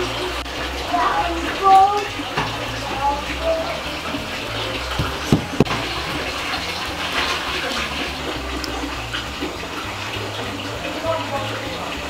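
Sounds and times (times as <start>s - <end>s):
sharp knocks: 5.0s - 5.9s.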